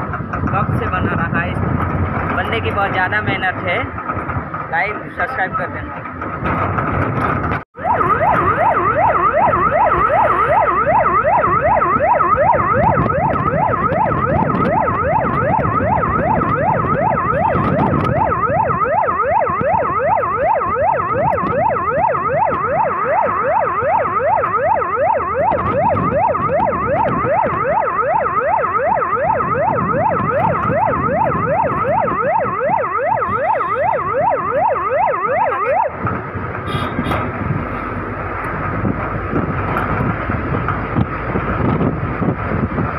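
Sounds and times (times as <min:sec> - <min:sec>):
vehicle engine and road noise: 0:00.0 - 0:42.9
electronic siren yelping: 0:07.8 - 0:36.0.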